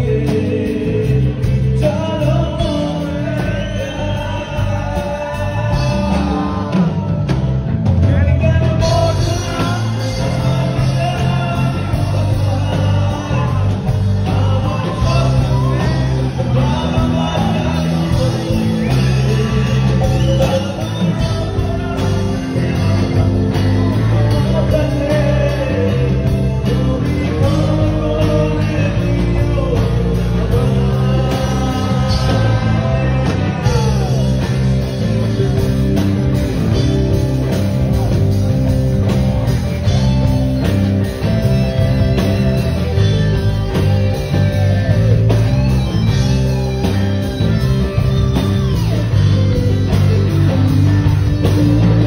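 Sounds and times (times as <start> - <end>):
man singing into microphone: 0.0 - 34.7
bass guitar: 0.0 - 52.0
drum kit: 0.0 - 52.0
electric guitar: 0.0 - 52.0.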